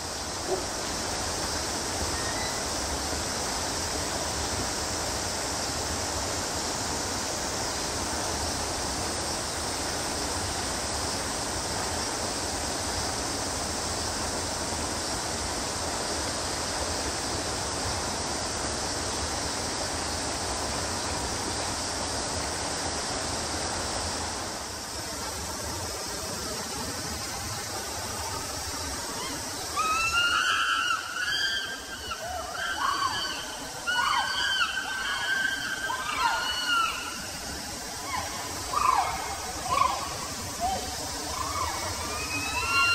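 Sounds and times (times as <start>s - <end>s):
chimpanzee screaming: 29.2s - 37.4s, 38.0s - 42.9s.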